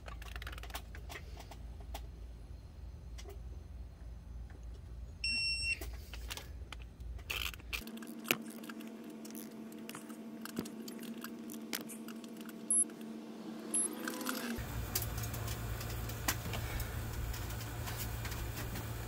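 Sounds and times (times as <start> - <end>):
steady hum: 0.0 - 19.0
short beep: 5.2 - 5.8.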